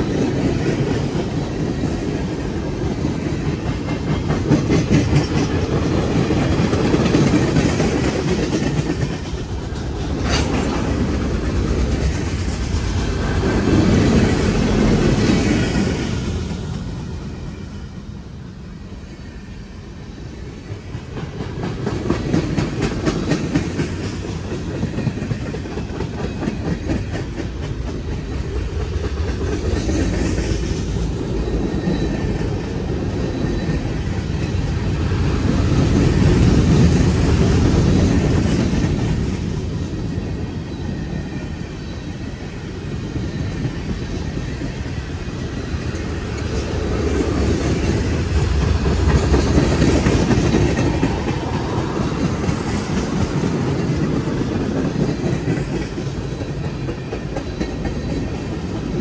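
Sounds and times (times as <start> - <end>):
wheels clacking over rail joints: 0.0 - 16.0
freight train rumbling: 0.0 - 59.0.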